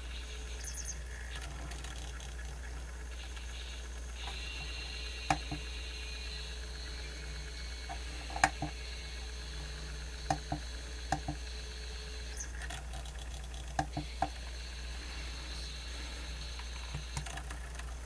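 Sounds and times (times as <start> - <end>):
steady low hum: 0.0 - 18.0
cd player skipping clicks: 4.2 - 5.7, 7.8 - 8.9, 10.2 - 11.4, 12.4 - 14.4, 16.6 - 18.0.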